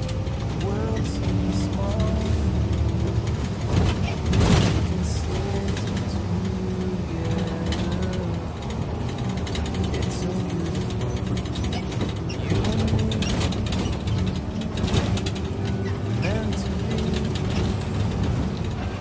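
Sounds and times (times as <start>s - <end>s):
bus body rattling: 0.0s - 19.0s
bus engine running: 0.0s - 19.0s.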